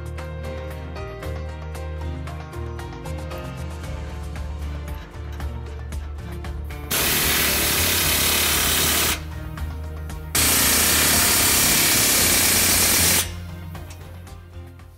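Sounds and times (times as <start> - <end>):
pneumatic impact wrench hammering: 6.9 - 9.3, 10.4 - 13.4.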